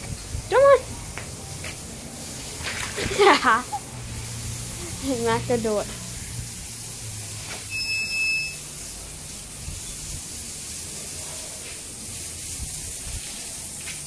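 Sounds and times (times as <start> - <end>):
steady hiss: 3.4 - 14.0
high-pitched electronic beep: 7.7 - 8.6.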